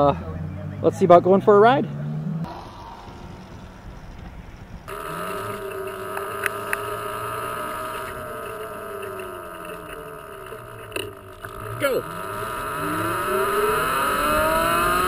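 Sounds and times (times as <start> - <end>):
wind and road noise: 0.0 - 15.0
electric motorcycle motor whine: 3.1 - 15.0.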